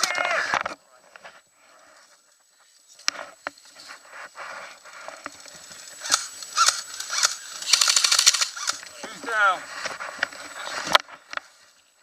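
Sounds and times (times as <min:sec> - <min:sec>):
rustling in dry brush: 0:01.3 - 0:12.0
sharp clicks: 0:06.0 - 0:09.2
sharp cracks: 0:06.0 - 0:09.2.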